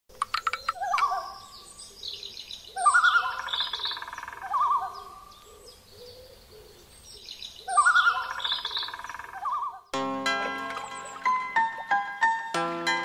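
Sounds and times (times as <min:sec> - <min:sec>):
warbling bird call: 0:00.2 - 0:01.7, 0:02.7 - 0:06.8, 0:07.6 - 0:09.9.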